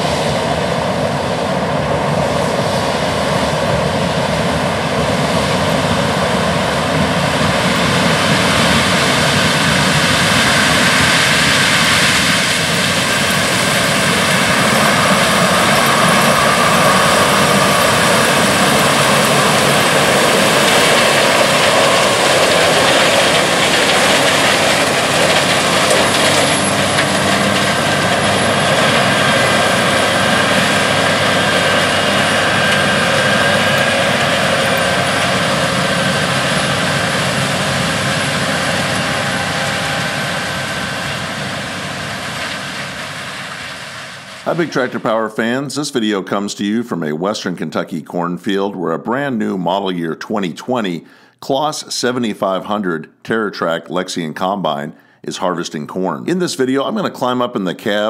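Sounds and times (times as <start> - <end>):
threshing machinery whir and whine: 0.0 - 45.1
diesel engine under load: 0.0 - 45.6.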